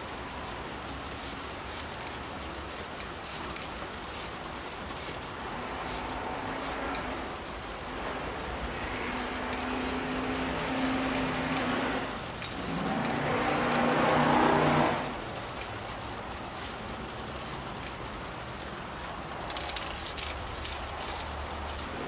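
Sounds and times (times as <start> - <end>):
rain ticking: 0.0 - 22.0
aerosol spray can hissing: 1.1 - 7.2, 8.9 - 15.8, 16.5 - 18.0, 19.5 - 21.9.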